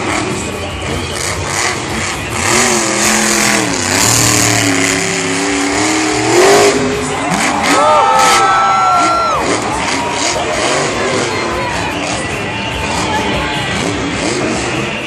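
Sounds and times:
truck engine revving hard: 0.0 - 15.0.

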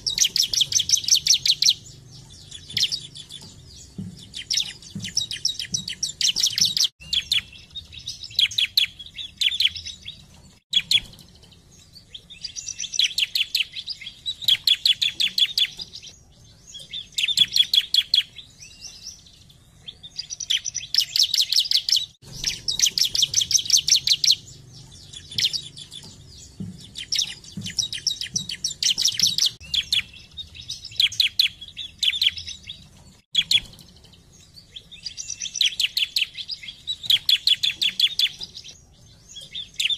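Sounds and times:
bird singing high sharp notes: 0.0 - 19.3, 19.9 - 39.9.

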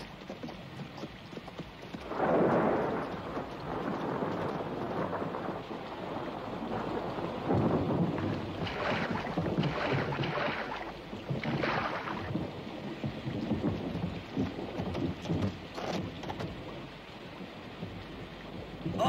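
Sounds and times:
heavy rain: 0.0 - 19.0
rumbling thunder: 2.0 - 15.5.

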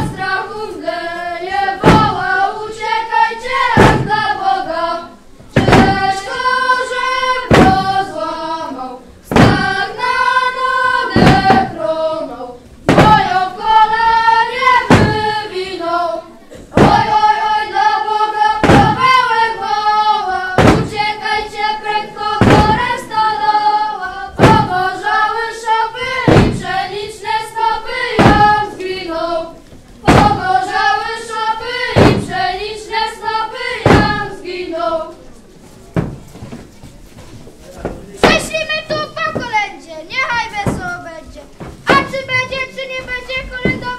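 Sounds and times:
children singing together: 0.0 - 35.2, 41.9 - 43.9
loud thump on floor: 1.8 - 2.3, 3.5 - 4.2, 5.5 - 6.2, 7.4 - 8.1, 9.3 - 9.9, 11.1 - 11.8, 12.9 - 13.5, 14.8 - 15.4, 16.7 - 17.3, 18.6 - 19.2, 20.6 - 21.1, 22.4 - 23.2, 24.4 - 24.8, 26.0 - 26.8, 28.2 - 28.6, 30.0 - 30.6, 32.0 - 32.4, 33.8 - 34.4, 36.0 - 36.6, 40.6 - 40.9.

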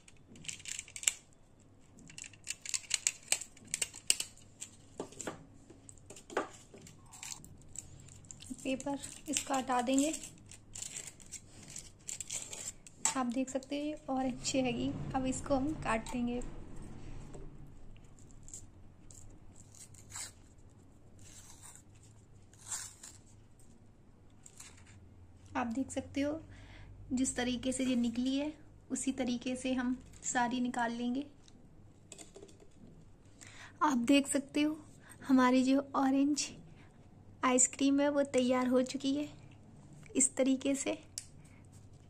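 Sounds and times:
aluminium foil crinkling: 0.0 - 5.0, 5.8 - 13.8
scissors snipping paper: 6.2 - 13.7
paper rustling and tearing: 6.5 - 12.9, 19.6 - 20.6, 21.2 - 23.4.

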